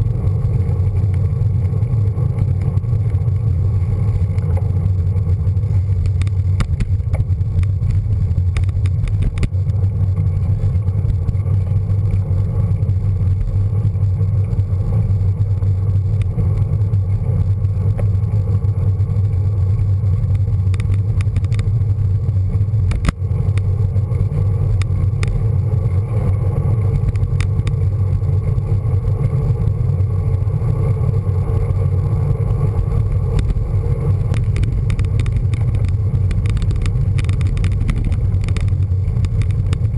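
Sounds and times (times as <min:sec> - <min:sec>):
road rumble: 0:00.0 - 0:39.9
small clicks: 0:20.6 - 0:21.8, 0:22.8 - 0:23.7, 0:33.0 - 0:39.9
wind buffeting microphone: 0:31.2 - 0:39.9.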